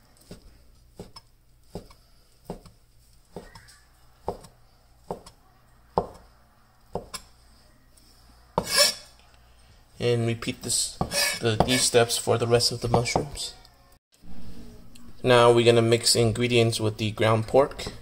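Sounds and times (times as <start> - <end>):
cleaver chopping on cutting board: 3.4 - 4.5, 8.6 - 9.0.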